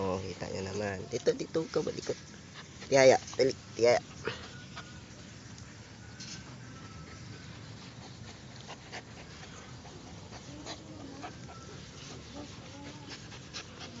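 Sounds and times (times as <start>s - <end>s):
dog whining: 10.4s - 14.0s.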